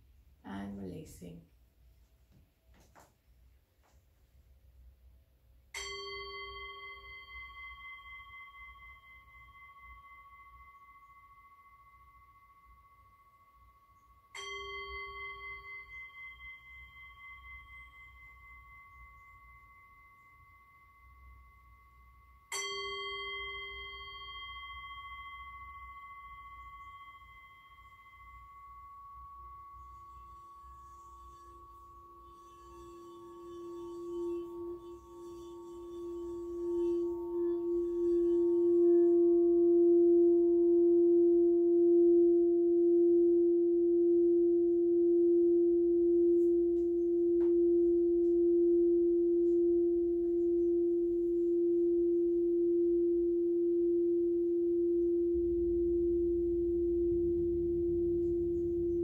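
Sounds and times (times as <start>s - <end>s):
singing bowl struck: 5.7s - 59.0s
singing bowl rim rubbed: 5.8s - 59.0s.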